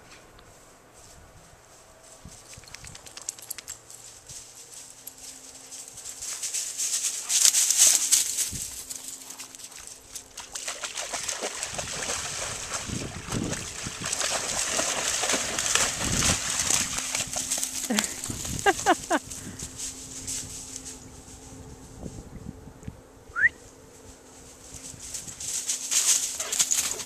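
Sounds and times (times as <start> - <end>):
dog splashing through water: 10.3 - 17.8.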